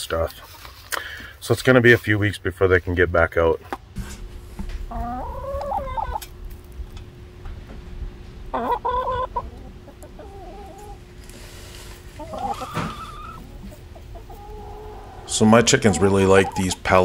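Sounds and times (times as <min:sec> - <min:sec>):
hens clucking: 0:00.0 - 0:01.8, 0:04.5 - 0:07.1, 0:08.1 - 0:17.0.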